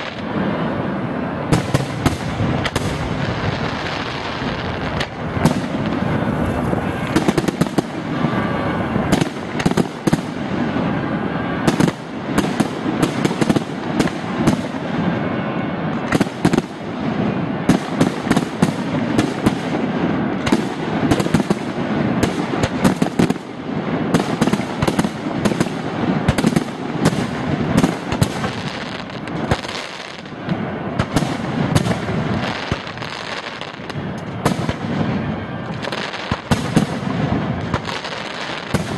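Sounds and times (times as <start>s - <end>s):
fireworks bangs and crackling: 0.0s - 38.9s.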